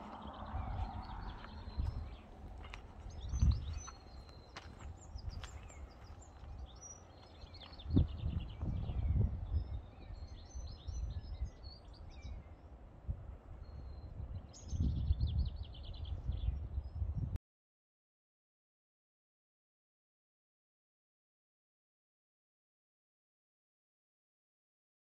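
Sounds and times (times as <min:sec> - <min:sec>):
small birds singing and chirping: 0:00.0 - 0:12.8, 0:13.5 - 0:17.2
wind buffeting microphone: 0:00.0 - 0:17.4.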